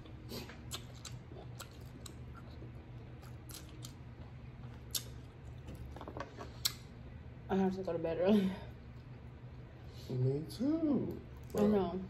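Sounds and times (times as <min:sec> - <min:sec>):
chewing: 0:00.3 - 0:06.8.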